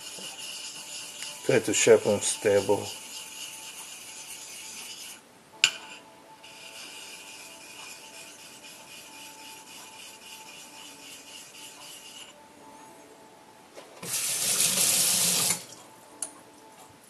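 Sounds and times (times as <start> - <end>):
razor blade rasping on whetstone: 0.0 - 5.2, 5.8 - 12.3.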